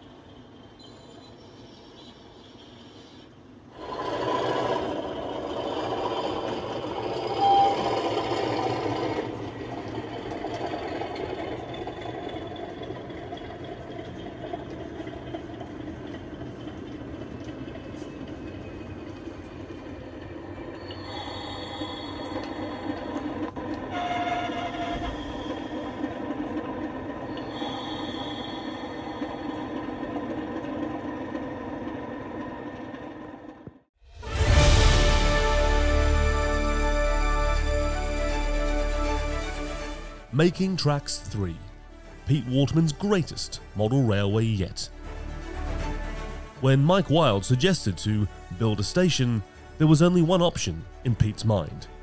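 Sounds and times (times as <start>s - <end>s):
model locomotive diesel engine sound: 0.0s - 52.0s
short horn sound: 23.9s - 25.2s.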